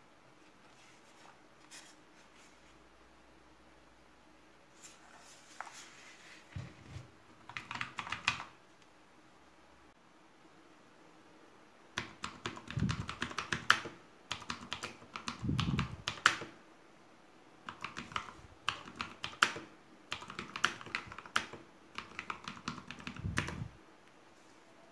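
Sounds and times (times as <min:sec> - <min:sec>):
mechanical keyboard typing: 0:07.4 - 0:08.5, 0:12.0 - 0:16.6, 0:17.7 - 0:23.7.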